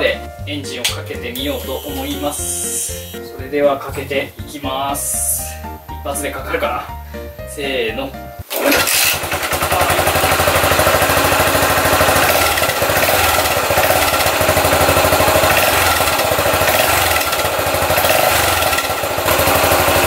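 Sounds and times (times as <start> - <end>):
motorcycle engine idling: 9.2 - 20.0.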